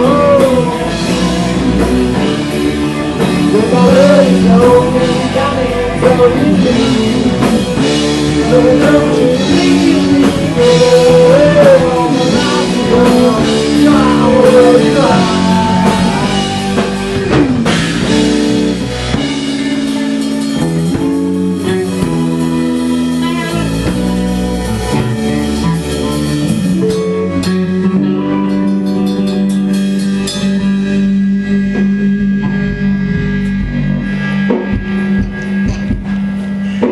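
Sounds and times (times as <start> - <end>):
drum kit: 0.0 - 36.9
electric bass: 0.0 - 36.9
electric guitar: 0.0 - 36.9.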